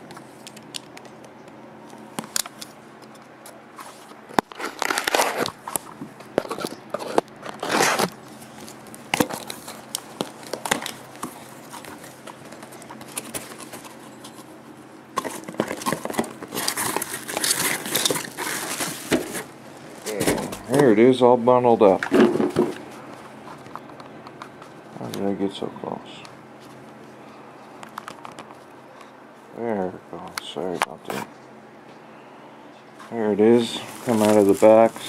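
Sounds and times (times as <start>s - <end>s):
cardboard box being opened: 15.2s - 19.5s, 33.8s - 35.0s.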